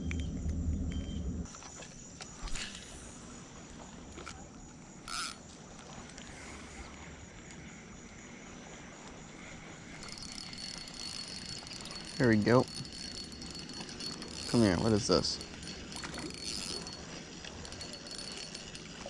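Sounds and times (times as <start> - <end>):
faint waterside ambience: 0.0 - 19.0
spinning reel whirring: 5.0 - 5.4, 9.5 - 19.0.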